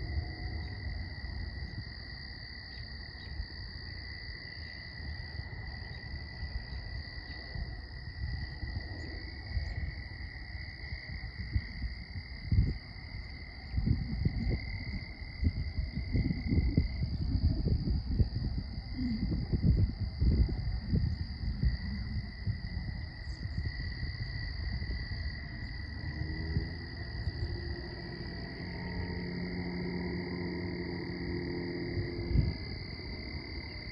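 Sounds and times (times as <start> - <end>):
crickets chirping: 0.0 - 33.9
wind buffeting microphone: 0.0 - 33.9
frogs calling: 20.8 - 33.9.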